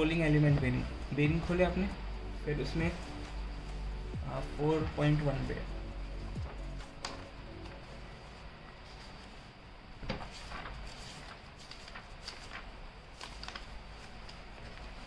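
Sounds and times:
paper pages rustling: 2.6 - 4.0, 4.6 - 15.0.

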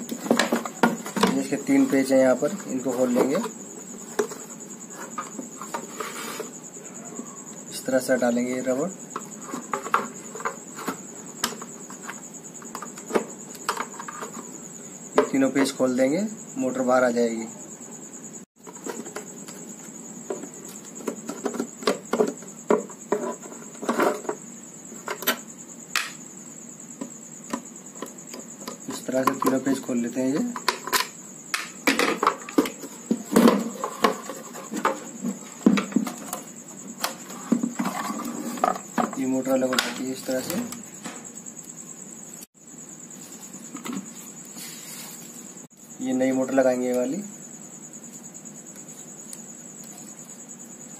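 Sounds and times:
plastic and metal parts knocking: 20.3 - 24.4.

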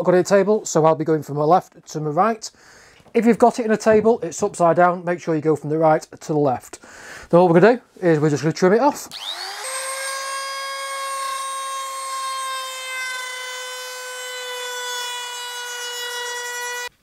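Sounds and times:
router whining: 9.1 - 16.9.

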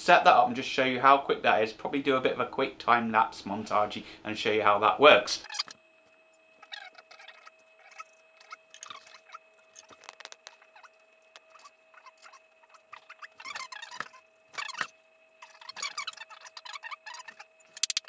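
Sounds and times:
faint steady hum: 0.0 - 18.0
squeaky chirps and clicks: 5.4 - 5.8, 6.6 - 18.0.

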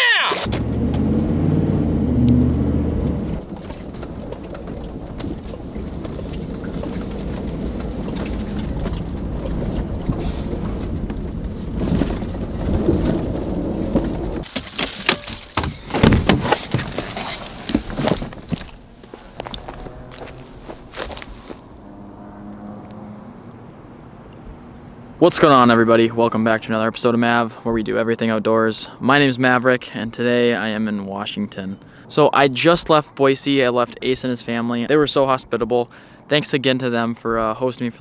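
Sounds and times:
truck engine and road noise: 0.4 - 29.2.

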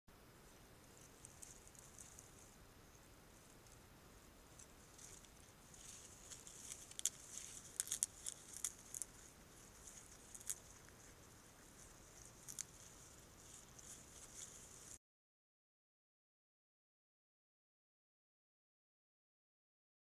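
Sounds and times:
steady high hiss: 0.2 - 15.0
porcupine nibbling leaves: 0.5 - 15.0.

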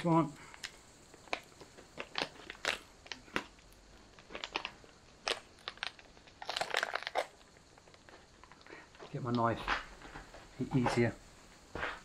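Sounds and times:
plastic pouch crinkling: 0.5 - 9.4.

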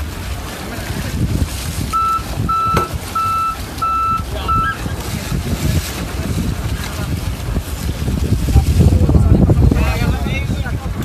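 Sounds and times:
water noise: 0.0 - 11.0
wind rumble on microphone: 0.0 - 11.0
short electronic beeps: 1.9 - 4.8.

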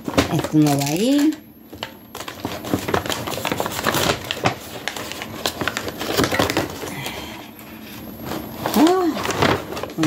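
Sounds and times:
paper bag rustling: 2.1 - 6.9, 7.8 - 10.0.

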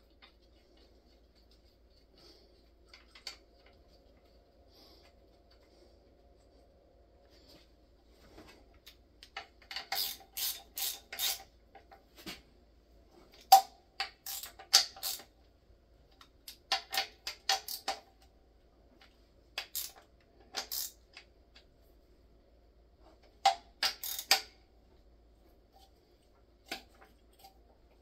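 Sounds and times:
ratchet wrench ratcheting: 9.6 - 11.5, 13.5 - 15.3, 16.7 - 18.0, 19.6 - 21.2, 23.8 - 24.6.

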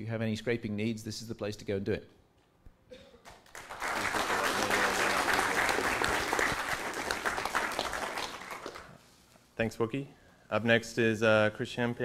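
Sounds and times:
audience applauding: 3.2 - 9.0.

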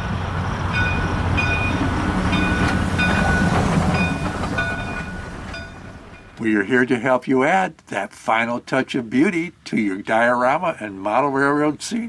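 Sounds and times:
model train rumbling on track: 0.0 - 7.4.

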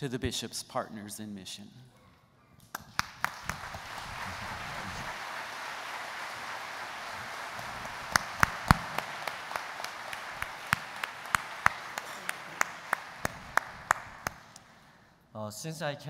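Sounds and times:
sharp single claps: 2.6 - 4.0, 6.1 - 14.8
audience applauding: 2.7 - 14.9.

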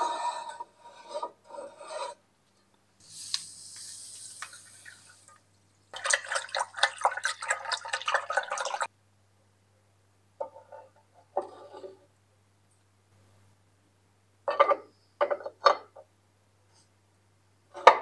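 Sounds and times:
scraping strokes: 0.0 - 2.2
powder pouring into water: 3.0 - 8.9.

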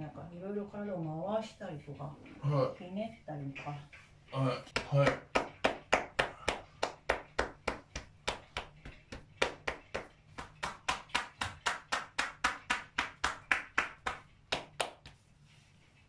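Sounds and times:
hands slapping on shoulders: 4.7 - 15.6.

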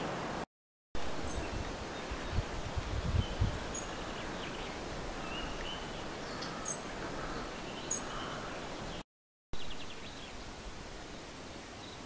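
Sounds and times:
birds chirping: 1.2 - 9.0.

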